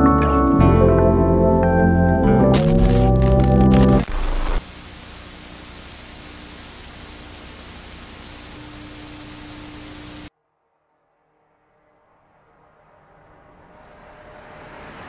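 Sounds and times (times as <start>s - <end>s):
television static hiss: 2.6s - 10.3s.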